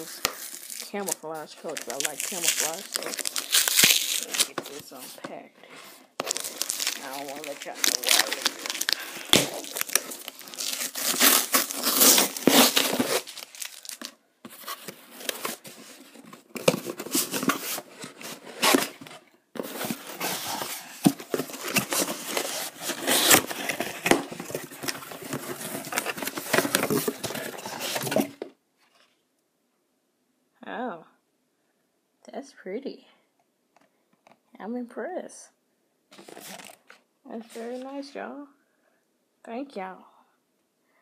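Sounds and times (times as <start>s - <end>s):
packaging crinkling and tearing: 0.0s - 28.5s.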